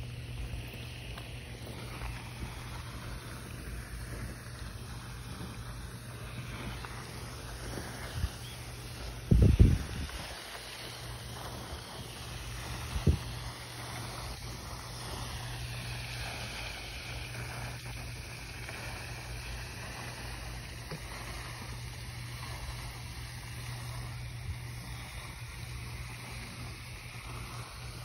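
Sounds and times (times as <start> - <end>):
even hiss: 0.0 - 28.0
low hum: 0.0 - 28.0.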